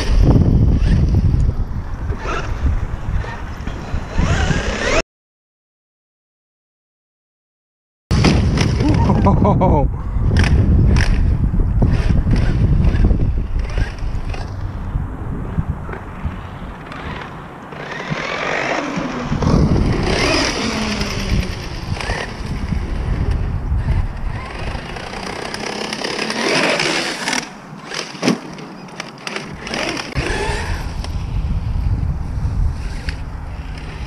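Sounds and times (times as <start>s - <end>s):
wind buffeting microphone: 0.0s - 5.0s, 8.1s - 28.0s, 29.2s - 34.0s
electric motor whine: 29.2s - 31.7s.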